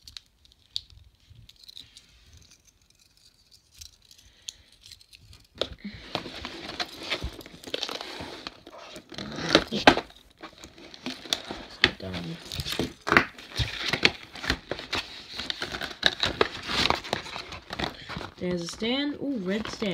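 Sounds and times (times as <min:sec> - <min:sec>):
cardboard tearing and scraping: 0:06.0 - 0:19.9.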